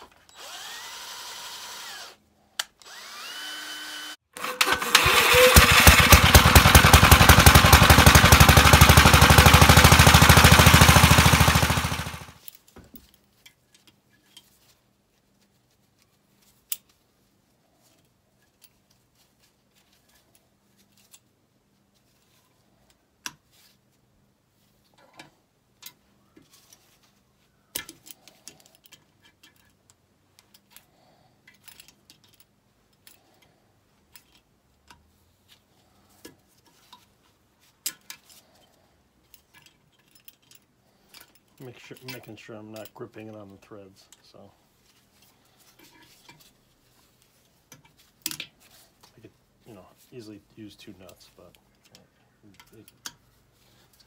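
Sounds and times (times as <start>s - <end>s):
hand tools clinking on metal: 39.3s - 44.4s, 50.7s - 53.4s.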